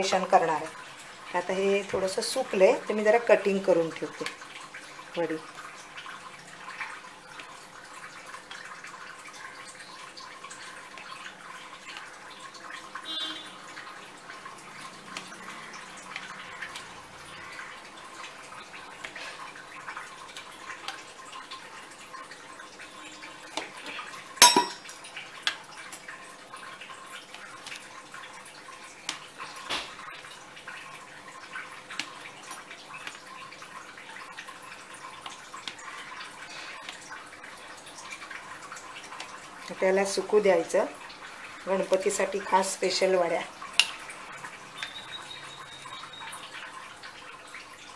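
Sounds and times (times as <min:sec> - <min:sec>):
metallic clink against tray: 0:24.4 - 0:24.8.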